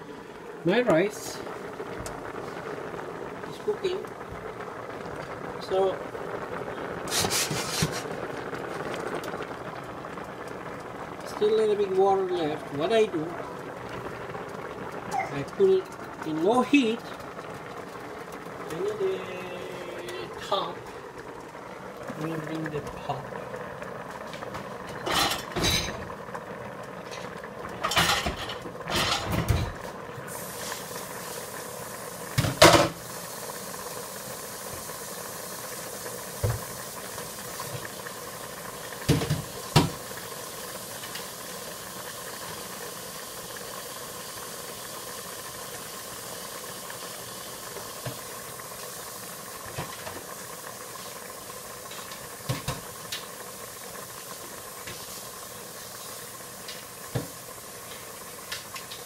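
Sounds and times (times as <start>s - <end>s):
food steaming and frying: 0.0s - 59.0s
pots and lids clanking: 7.1s - 8.1s, 24.5s - 26.1s, 27.1s - 29.8s.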